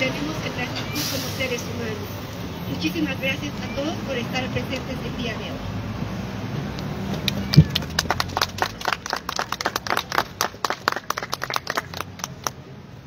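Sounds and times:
small group clapping: 7.1s - 12.6s.

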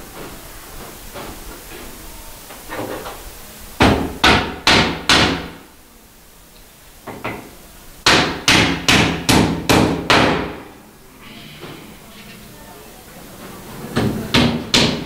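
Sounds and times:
hammer striking nails into wood: 3.8s - 5.6s, 8.1s - 10.6s, 14.3s - 15.0s.

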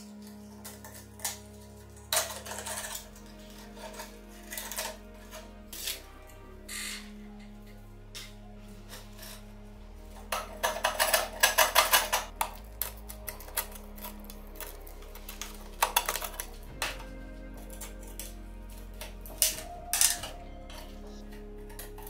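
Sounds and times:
background music: 0.0s - 22.0s
screwdriver scraping metal wire: 0.2s - 6.1s, 10.1s - 18.3s.

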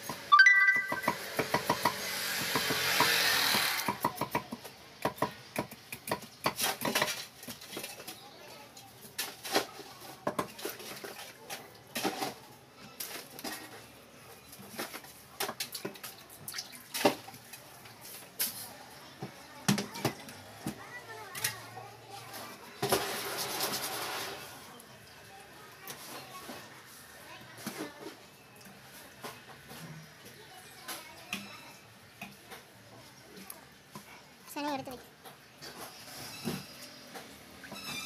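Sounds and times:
water pouring and splashing: 9.2s - 13.5s, 14.8s - 18.0s.

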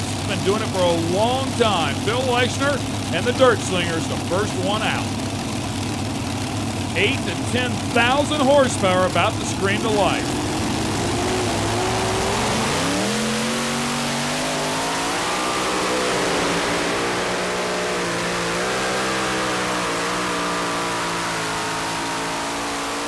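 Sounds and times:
tractor engine at full throttle: 0.0s - 23.0s.

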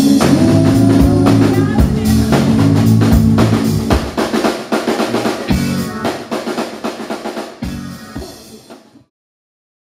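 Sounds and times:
low bass notes: 0.0s - 4.2s, 5.0s - 6.2s, 7.6s - 8.4s
snare and cymbal hits: 0.0s - 9.0s.

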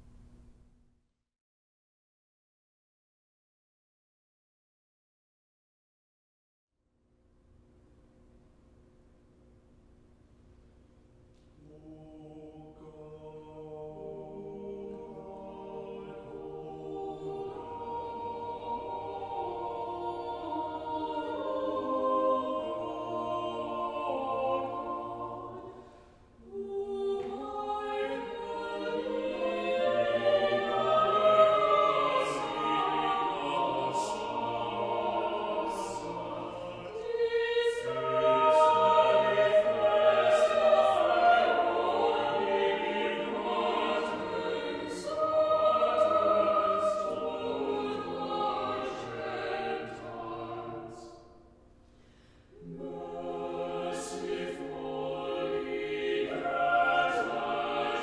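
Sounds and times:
mixed choir singing: 11.6s - 51.4s, 52.5s - 58.0s.

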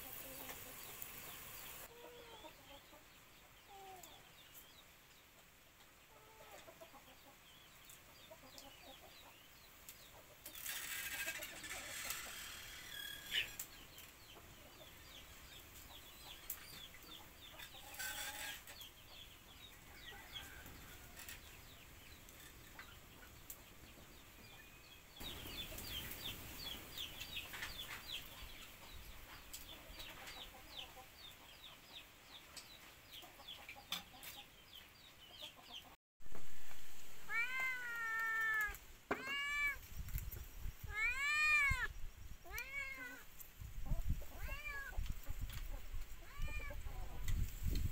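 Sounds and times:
cat meowing: 37.3s - 39.8s, 40.9s - 43.2s, 44.3s - 45.0s, 46.2s - 46.9s.

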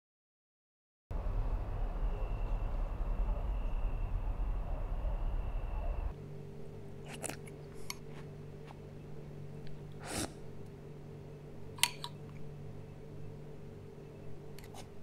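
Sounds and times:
steady low hum: 1.1s - 15.0s.

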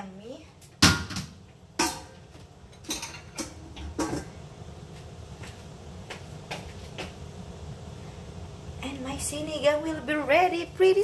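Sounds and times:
low steady hum: 0.0s - 11.0s
kitchen things knocking and clicking: 0.8s - 4.4s.

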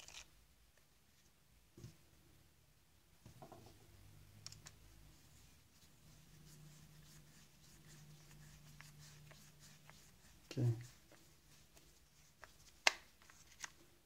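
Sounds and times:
faint steady low hum: 0.0s - 14.0s.

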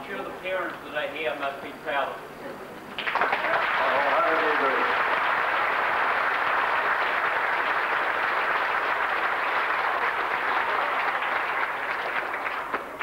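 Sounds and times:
crowd applauding: 2.9s - 13.0s.

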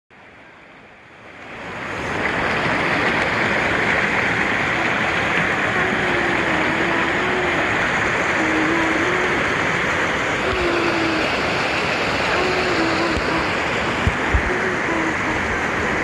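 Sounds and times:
stream rushing over rocks: 1.1s - 16.0s.

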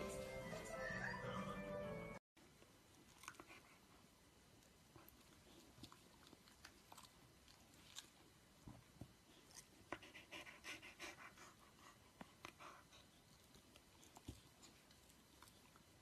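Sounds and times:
dog panting: 9.4s - 15.7s.

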